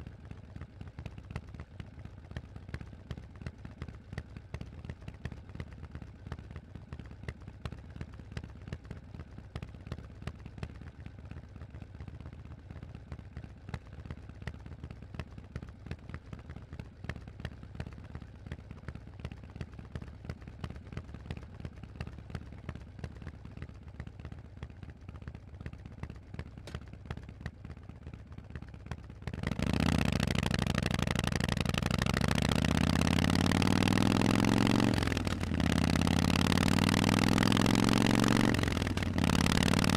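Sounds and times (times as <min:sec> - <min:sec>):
motorcycle engine idling: 0:00.0 - 0:39.9
motorcycle accelerating: 0:29.3 - 0:39.9.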